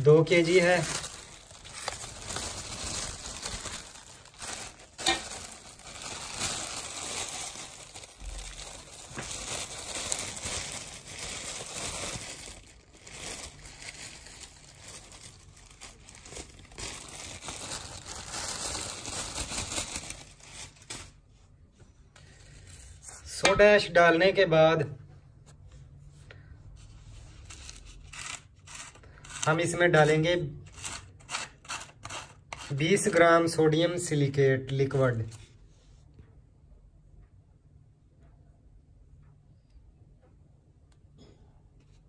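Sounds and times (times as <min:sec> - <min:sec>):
plastic bag crinkling: 0:00.0 - 0:21.2.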